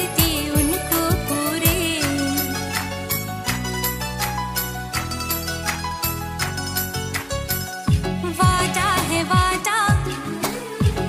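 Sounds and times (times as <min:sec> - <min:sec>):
instrumental music with beat: 0:00.0 - 0:11.0.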